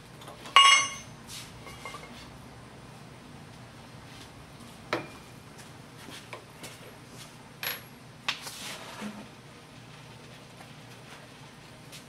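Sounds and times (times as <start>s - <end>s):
steady low hum: 0.0s - 8.3s
metal tools clinking: 0.5s - 2.1s.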